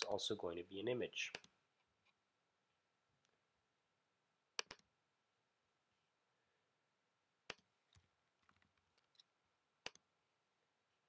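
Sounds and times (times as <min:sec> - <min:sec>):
computer mouse clicking: 0:04.6 - 0:04.9, 0:07.5 - 0:10.1.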